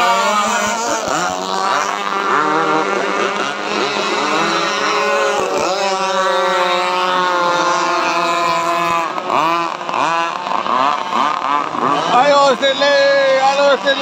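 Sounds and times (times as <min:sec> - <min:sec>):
model boat engines buzzing: 0:00.0 - 0:14.0.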